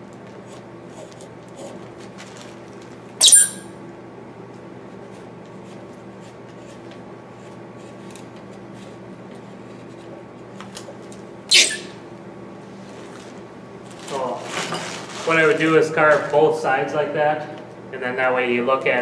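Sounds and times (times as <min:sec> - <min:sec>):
gouge squeaking scrapes on wood: 0:11.5 - 0:12.0.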